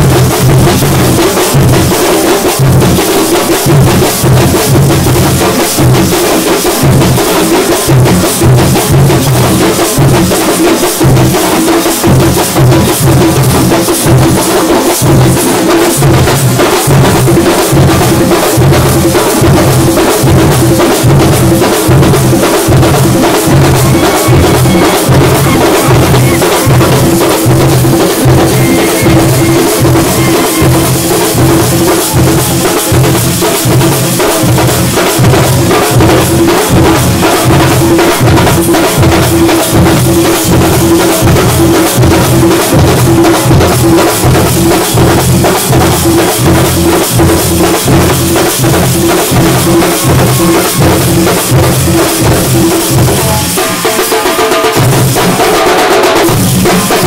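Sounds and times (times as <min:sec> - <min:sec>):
high clatter of small drums: 0:00.0 - 0:57.0
deep drum strokes: 0:19.4 - 0:36.2
steady held tone: 0:22.6 - 0:34.7.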